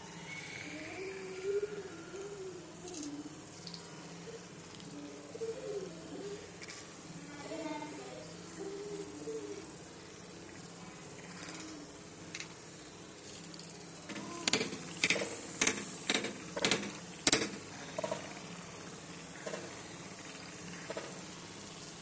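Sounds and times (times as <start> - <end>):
deep-frying sizzle: 2.6 - 22.0
sharp clicks: 14.1 - 18.3.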